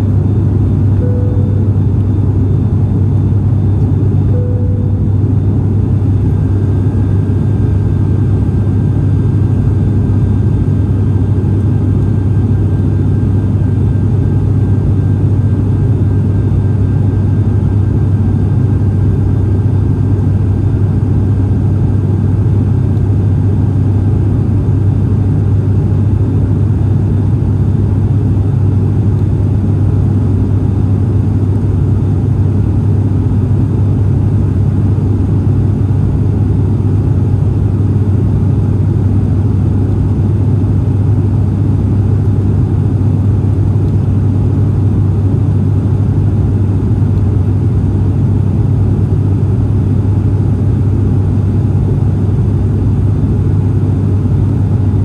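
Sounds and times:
turboprop engines droning in cabin: 0:00.0 - 0:55.0
faint thin tone: 0:01.0 - 0:02.0, 0:04.3 - 0:05.2.

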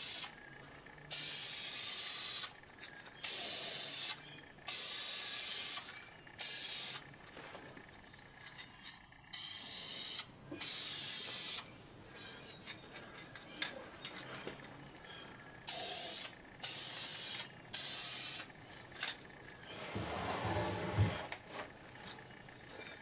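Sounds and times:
aerosol spray can hissing: 0:15.7 - 0:18.5.

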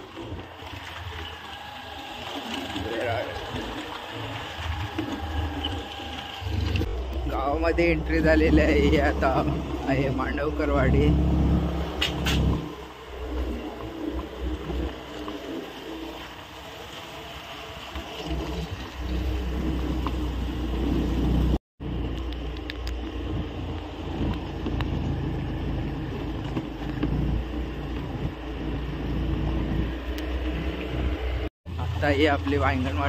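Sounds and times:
road and wind noise: 0:00.0 - 0:33.0
motorbike engine running: 0:18.3 - 0:33.0.

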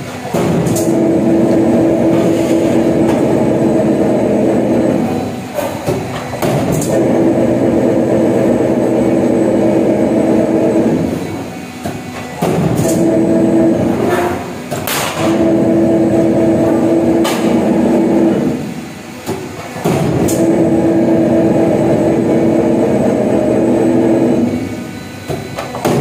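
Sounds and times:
roll forming machine running: 0:00.0 - 0:26.0
sharp machine knocks: 0:25.7 - 0:26.0.

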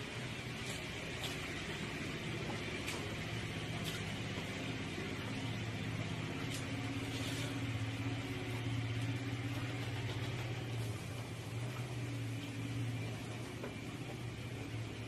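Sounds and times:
low mechanical hum: 0:00.0 - 0:15.0
faint eating clicks: 0:02.3 - 0:12.5.

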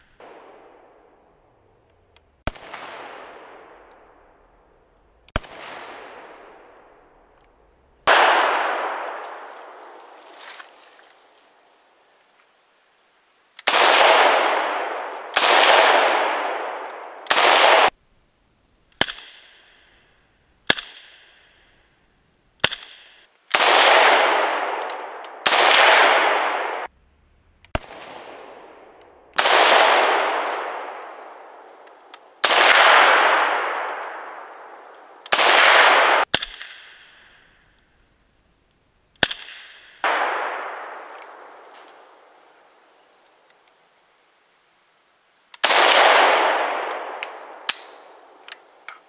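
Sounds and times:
rifle shots echoing: 0:00.0 - 0:01.2, 0:02.4 - 0:04.2, 0:05.3 - 0:07.0, 0:08.0 - 0:11.4, 0:13.6 - 0:18.0, 0:22.6 - 0:26.9, 0:27.7 - 0:37.2, 0:39.2 - 0:42.8, 0:45.6 - 0:49.0
sharp short cracks: 0:27.7 - 0:37.5, 0:39.2 - 0:42.4, 0:45.5 - 0:49.0.

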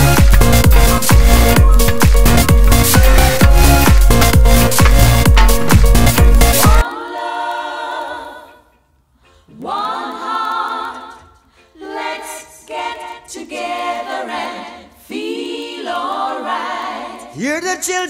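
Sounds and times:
a cappella group singing harmony: 0:05.9 - 0:08.7, 0:09.4 - 0:17.4.

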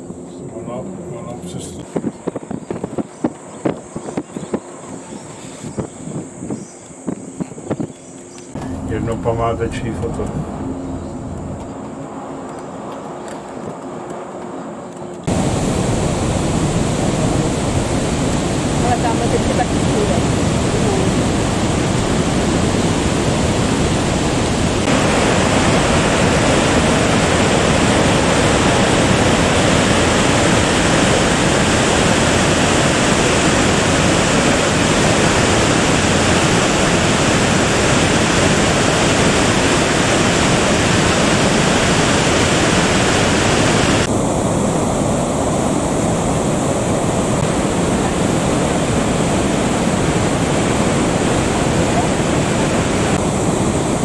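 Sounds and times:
waterfall rushing: 0:15.3 - 0:54.0.

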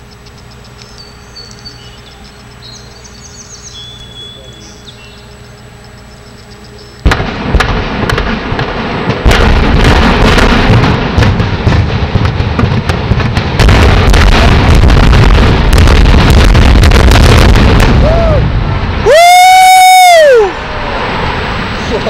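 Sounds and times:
heavy low rumble: 0:00.0 - 0:22.0
demolition charges banging: 0:07.0 - 0:19.1.

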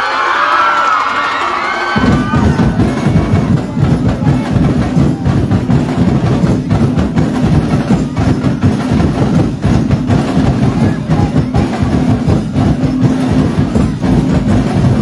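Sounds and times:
crowd shouting and cheering: 0:00.0 - 0:15.0
percussion-heavy dance music: 0:00.8 - 0:15.0.

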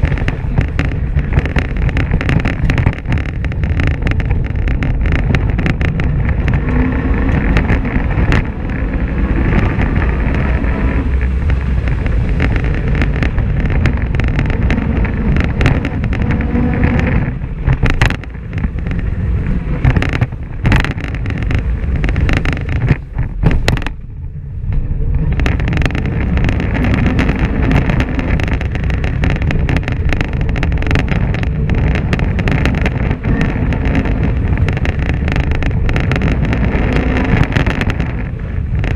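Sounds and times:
knocks and rattles from rough ground: 0:00.0 - 0:24.1, 0:24.7 - 0:38.9
engine running under load: 0:00.0 - 0:38.9
wind on microphone: 0:00.0 - 0:38.9.

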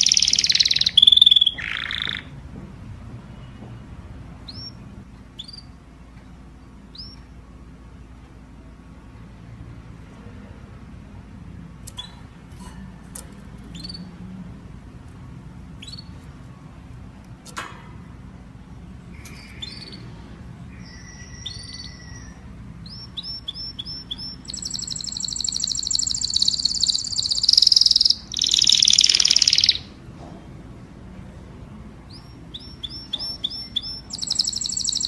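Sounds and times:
canary chirps and whistles: 0:00.0 - 0:02.3, 0:04.4 - 0:04.8, 0:05.4 - 0:05.8, 0:06.9 - 0:07.3, 0:13.7 - 0:14.1, 0:15.8 - 0:16.3, 0:19.1 - 0:30.0, 0:32.1 - 0:35.0
canary rapid high trill: 0:00.0 - 0:02.4, 0:19.1 - 0:30.0, 0:32.2 - 0:35.0.

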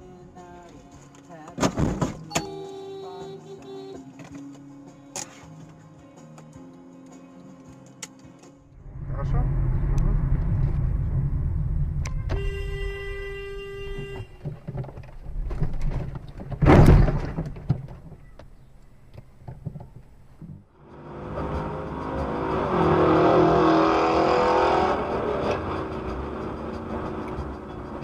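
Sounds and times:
car engine and road noise: 0:00.0 - 0:28.0
car horn: 0:02.3 - 0:04.1, 0:12.1 - 0:14.6
loud collision bang: 0:16.6 - 0:17.4.

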